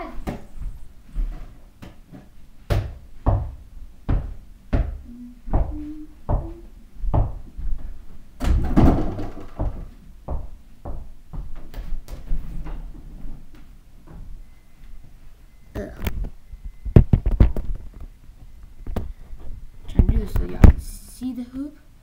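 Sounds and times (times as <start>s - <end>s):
basketball bouncing on floor: 2.7s - 7.8s, 8.4s - 12.2s.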